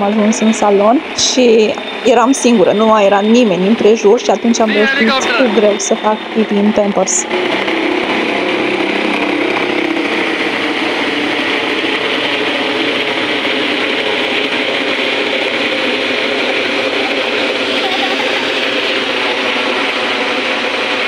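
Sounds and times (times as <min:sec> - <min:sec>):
helicopter engine and rotor: 0:00.0 - 0:21.0.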